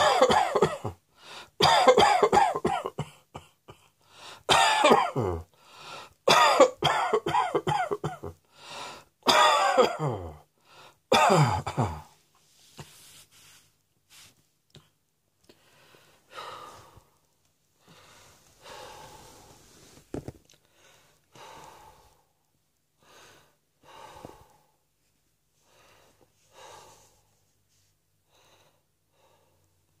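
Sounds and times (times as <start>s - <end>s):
person breathing heavily: 1.1s - 1.6s, 3.8s - 4.5s, 5.5s - 6.2s, 8.4s - 9.2s, 10.0s - 11.1s, 15.5s - 20.0s, 20.6s - 24.8s, 25.6s - 27.4s, 28.2s - 29.8s.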